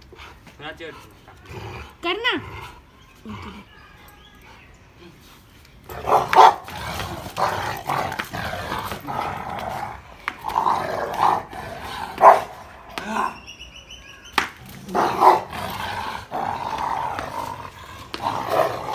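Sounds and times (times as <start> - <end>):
dog growling in play: 1.4 - 3.7, 5.9 - 12.4, 14.7 - 18.9.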